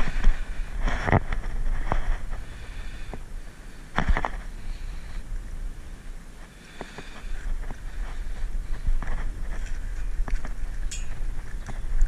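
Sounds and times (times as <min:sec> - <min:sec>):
wind rumbling on microphone: 0:00.0 - 0:12.0.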